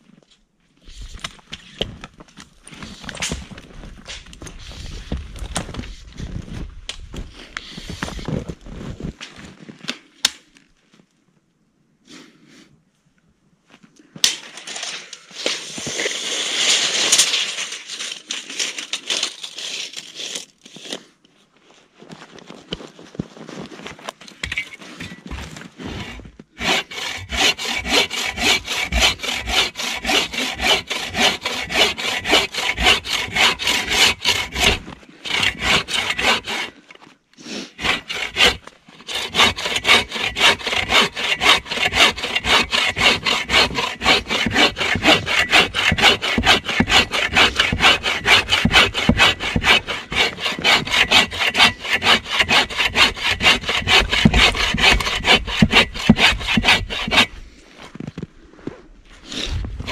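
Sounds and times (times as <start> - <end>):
bow saw cutting log: 25.9 - 36.8, 37.6 - 57.4.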